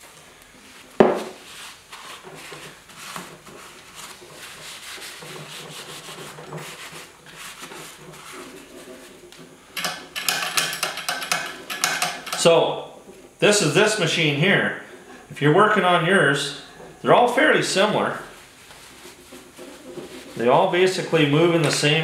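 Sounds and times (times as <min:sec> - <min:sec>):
rag wiping metal: 0:01.2 - 0:09.7, 0:13.5 - 0:22.0.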